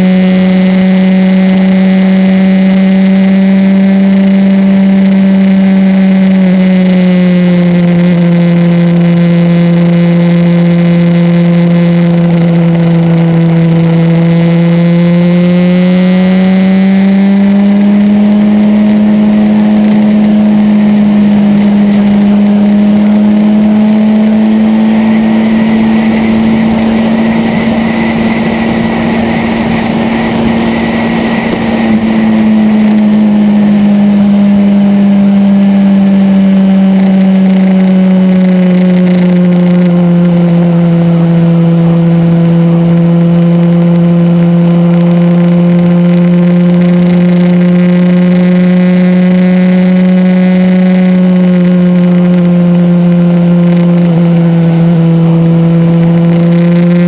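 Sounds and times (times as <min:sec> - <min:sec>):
motorcycle engine running: 0:00.0 - 0:57.0
rushing noise: 0:17.6 - 0:35.4.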